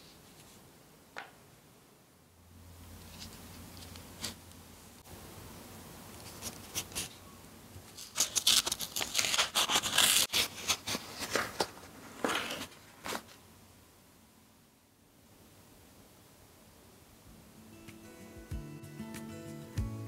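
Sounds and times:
paper rustling: 0:06.2 - 0:07.2, 0:07.8 - 0:13.4
paper crackling and tearing: 0:07.9 - 0:13.4.

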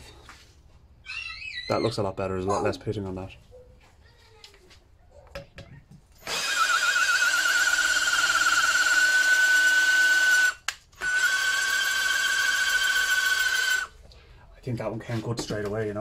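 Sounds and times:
cordless drill motor whine: 0:06.2 - 0:13.9.

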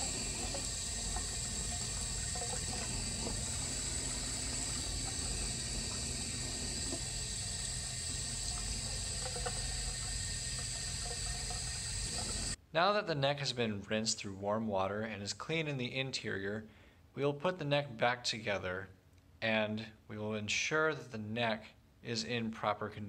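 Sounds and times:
tap water running into sink: 0:00.0 - 0:12.6.

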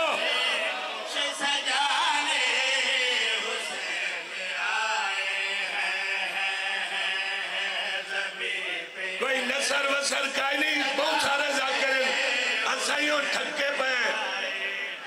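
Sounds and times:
men chanting over a pa: 0:00.0 - 0:15.0.

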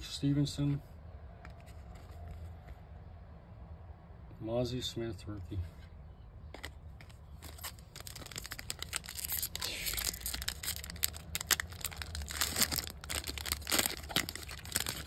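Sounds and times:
foil wrapper tearing and crinkling: 0:07.4 - 0:15.0.

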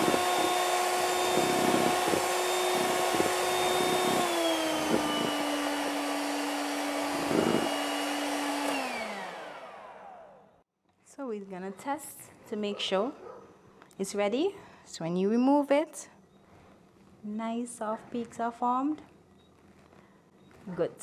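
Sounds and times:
electric mixer whirring: 0:00.0 - 0:10.6.

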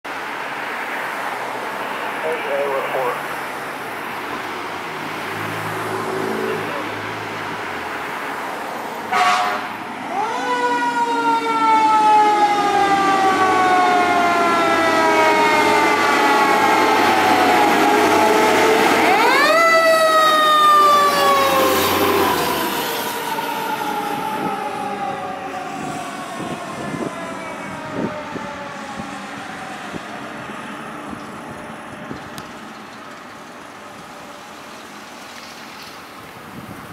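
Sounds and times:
fire engine siren: 0:00.7 - 0:32.8
loud horn blast: 0:09.1 - 0:09.8.

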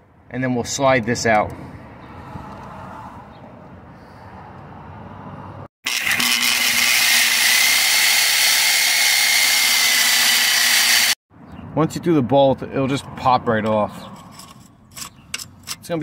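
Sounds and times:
reciprocating saw cutting metal: 0:05.8 - 0:11.2.

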